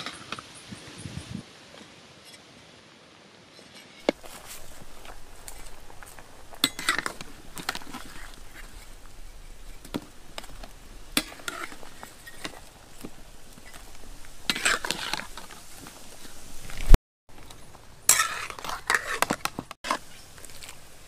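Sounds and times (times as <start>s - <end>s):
metal ladle scraping a pot: 4.0s - 16.4s, 18.1s - 20.7s.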